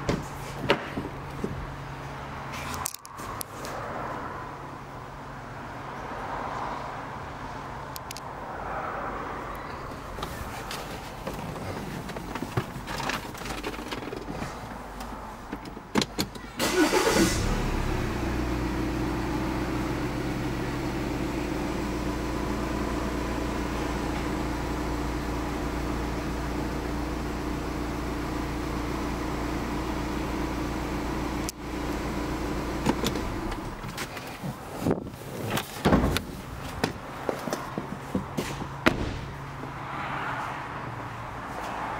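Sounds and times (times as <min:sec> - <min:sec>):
car engine starting: 0:10.1 - 0:34.5
clicks and knocks in cabin: 0:10.8 - 0:16.5
car engine idling: 0:16.5 - 0:34.0.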